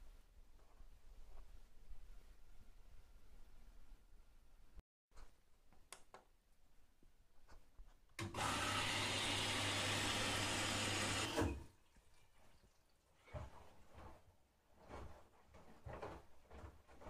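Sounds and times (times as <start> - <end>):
washing machine filling with water: 8.2 - 12.8.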